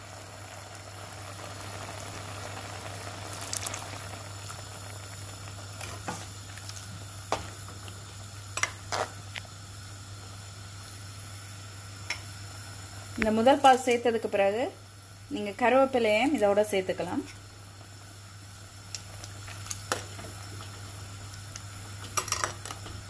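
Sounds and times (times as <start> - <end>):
curry simmering and bubbling: 0.0 - 9.5.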